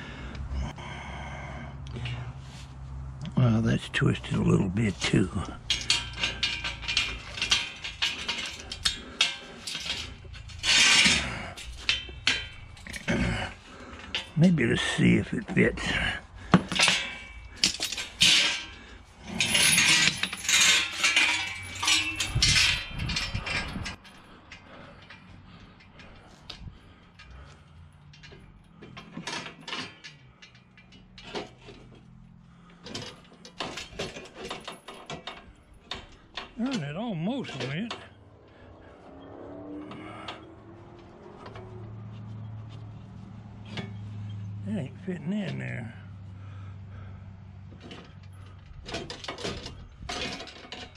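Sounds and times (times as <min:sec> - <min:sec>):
metal clanking: 0:04.0 - 0:50.9
metal frame ticks and knocks: 0:04.1 - 0:50.9
chain jingling: 0:16.8 - 0:36.9.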